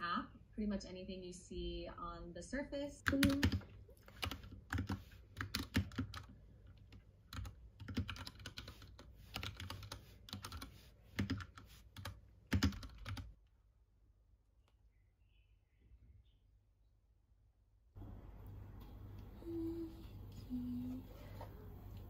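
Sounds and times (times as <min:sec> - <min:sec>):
mechanical keyboard typing: 0:03.0 - 0:13.3.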